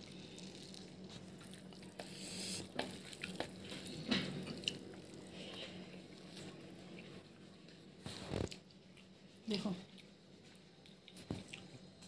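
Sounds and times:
wet chewing and lip smacks: 8.4s - 9.2s, 9.8s - 12.0s.

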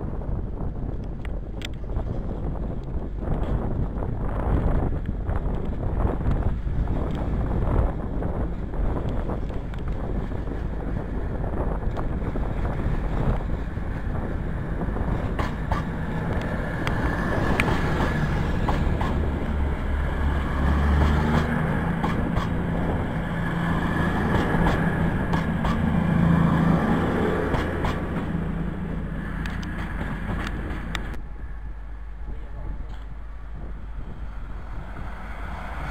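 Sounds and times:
diesel train engines droning: 1.8s - 35.9s
sharp clicks of train wheels: 14.8s - 28.5s, 29.1s - 31.2s.

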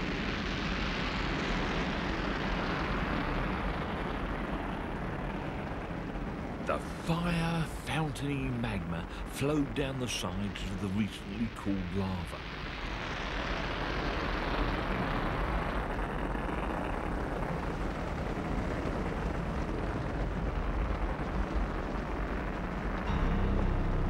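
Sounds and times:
lava fountains roaring: 0.0s - 24.0s
deep rumble: 12.3s - 24.0s.

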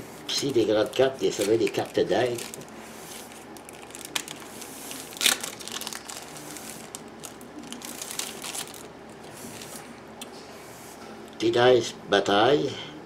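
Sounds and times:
packaging crinkling: 0.4s - 9.9s.

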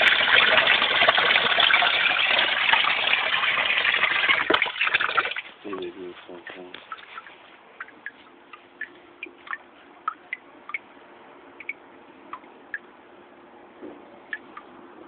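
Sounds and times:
faint steady hum: 0.0s - 15.0s
water drops plinking into pond: 7.8s - 10.9s, 11.6s - 12.9s, 14.3s - 14.7s.

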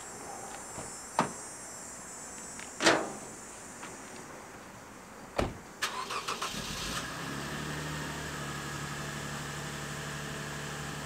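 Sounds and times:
car door shutting: 2.8s - 3.3s, 5.4s - 6.1s
car engine cranking and idling: 5.8s - 11.0s.

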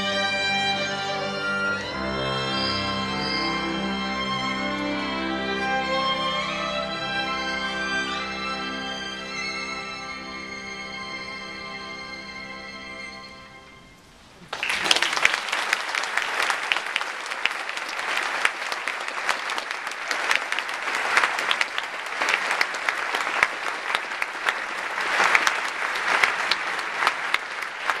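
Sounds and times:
audience applauding: 14.4s - 28.0s.

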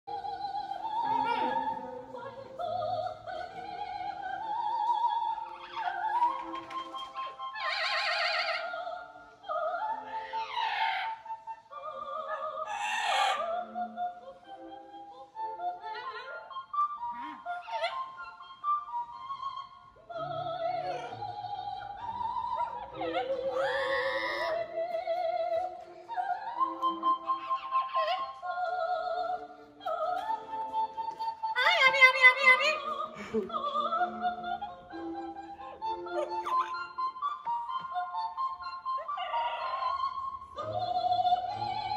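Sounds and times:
opera singer with wide vibrato: 0.1s - 41.9s
parrot singing along: 7.2s - 8.7s, 10.0s - 11.2s, 12.6s - 13.6s, 38.9s - 40.1s.

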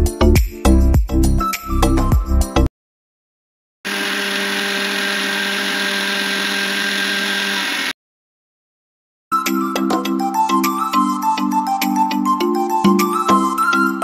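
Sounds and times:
mixer grinder motor whining: 3.9s - 8.0s.

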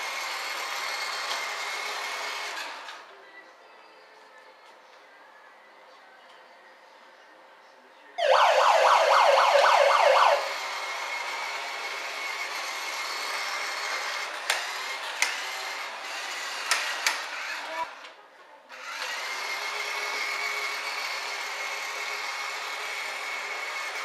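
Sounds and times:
toy siren warbling yelp: 8.2s - 10.6s.

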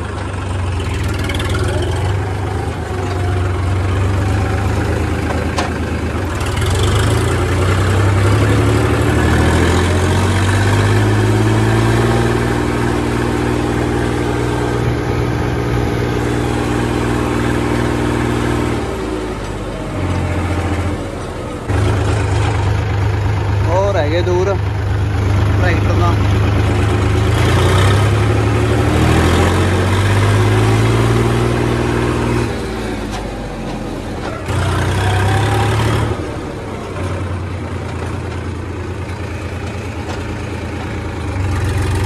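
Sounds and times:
diesel engine revving: 0.0s - 42.0s.

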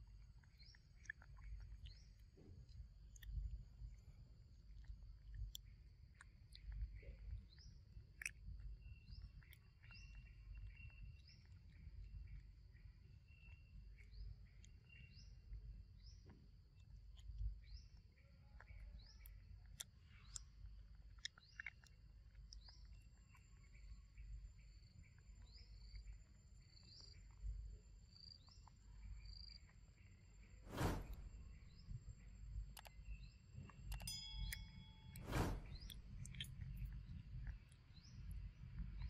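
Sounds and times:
short rising chirps: 30.7s - 32.0s, 33.9s - 36.5s.

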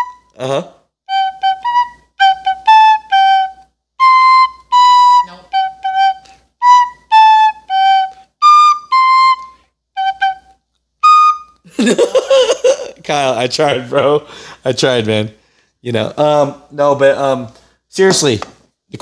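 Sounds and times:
recorder playing a tune: 0.0s - 11.7s.

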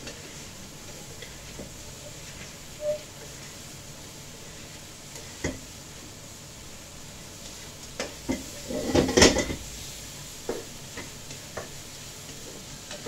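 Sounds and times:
spatula knocking and scraping wok: 0.0s - 3.7s, 4.6s - 5.8s, 7.4s - 13.0s
steady frying hiss: 0.0s - 13.0s.

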